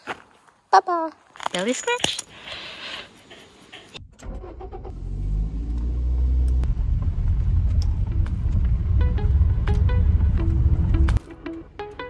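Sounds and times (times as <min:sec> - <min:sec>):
car engine accelerating: 0:04.0 - 0:11.2.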